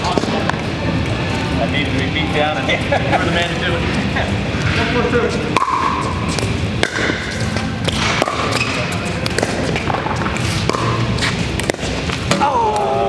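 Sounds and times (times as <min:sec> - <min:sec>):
ball bouncing on court: 0:05.6 - 0:12.9
paddles hitting plastic ball: 0:05.6 - 0:13.0.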